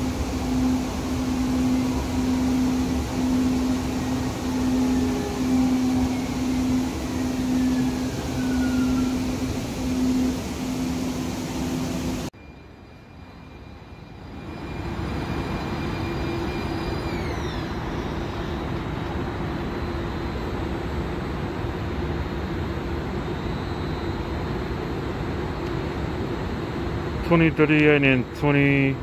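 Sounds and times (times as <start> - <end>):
electric hum: 0.0 - 12.3
high electric whine: 0.0 - 21.0
train running noise: 0.0 - 29.0.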